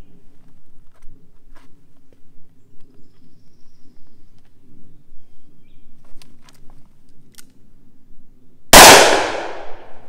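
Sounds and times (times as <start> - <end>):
loud gunshot: 8.7 - 10.0.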